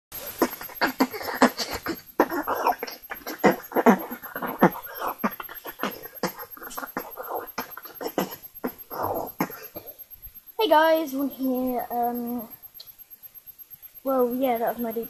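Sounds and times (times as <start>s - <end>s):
child beatboxing: 0.3s - 9.9s, 10.6s - 12.6s.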